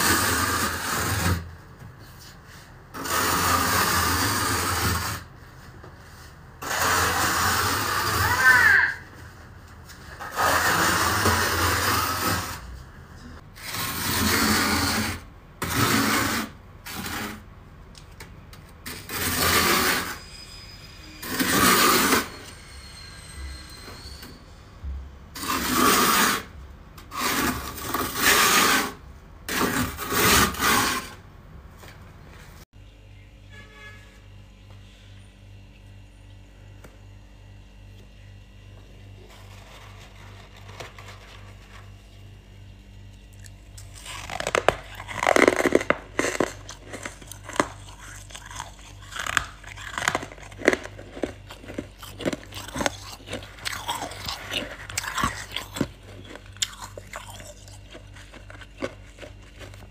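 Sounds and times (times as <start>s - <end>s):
plastic spatula scraping frost: 0.0s - 12.8s, 13.4s - 17.5s, 18.8s - 20.4s, 21.2s - 22.5s, 25.4s - 26.5s, 27.1s - 31.2s, 39.2s - 42.2s, 43.8s - 59.9s.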